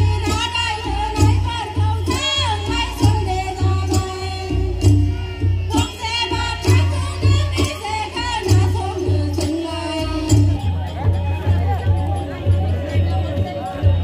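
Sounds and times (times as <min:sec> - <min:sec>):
clinking percussion: 0:00.0 - 0:14.0
heavy drum beat: 0:00.0 - 0:14.0.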